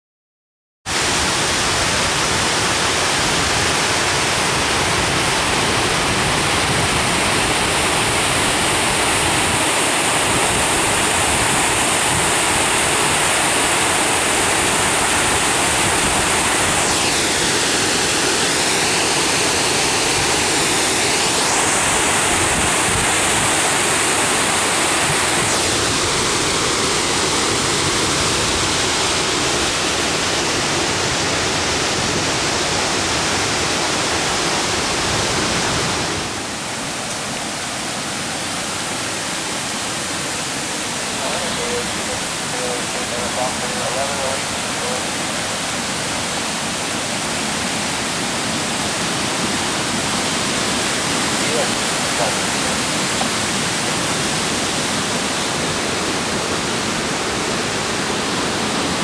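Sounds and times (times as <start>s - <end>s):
water rushing over a dam: 0.9s - 59.0s.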